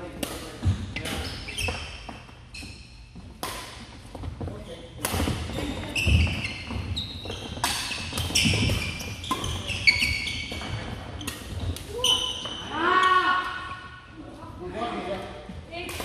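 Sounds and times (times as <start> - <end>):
rackets hitting shuttlecock: 0.1 - 1.9, 3.2 - 4.2, 5.0 - 6.5, 7.2 - 12.6
sneakers squeaking on hardwood floor: 0.6 - 13.5.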